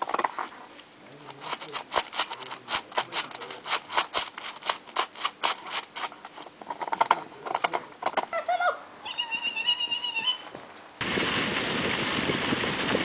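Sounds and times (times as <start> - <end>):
dog licking and crunching ice: 1.2 - 6.4.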